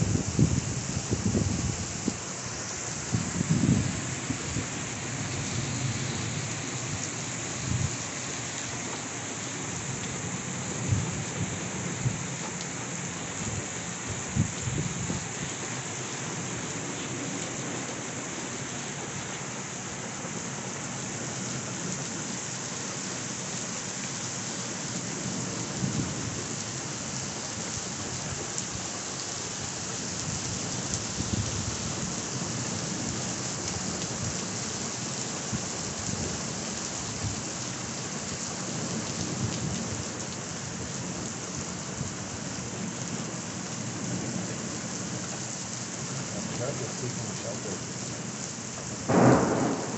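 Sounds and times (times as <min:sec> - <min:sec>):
rain pouring onto pavement: 0:00.0 - 0:49.9
thunder rumbling: 0:49.1 - 0:49.9.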